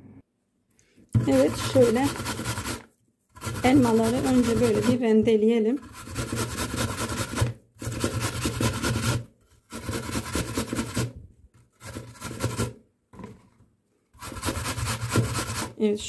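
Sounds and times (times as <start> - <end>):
apple rasping on metal grater: 1.2 - 5.1, 5.8 - 11.1, 14.2 - 15.8.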